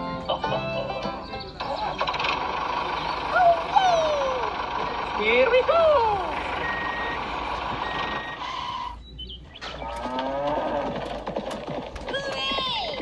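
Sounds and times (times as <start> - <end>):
vehicle engine running: 0.0 - 13.0
reversing beeps: 6.6 - 9.7
cow mooing: 9.8 - 11.0.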